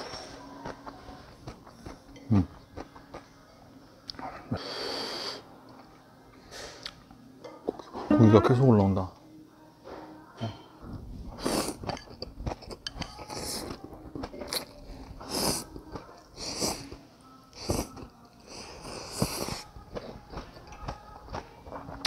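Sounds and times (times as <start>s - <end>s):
chewing: 0.6s - 3.3s, 11.4s - 22.0s
person slurping noodles: 15.2s - 15.6s, 18.5s - 19.6s.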